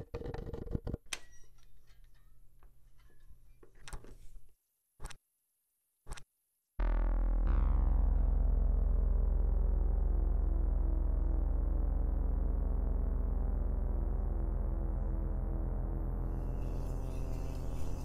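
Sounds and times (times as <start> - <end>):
low hum: 6.8 - 18.0
synthesizer and electric piano chords: 6.8 - 18.0.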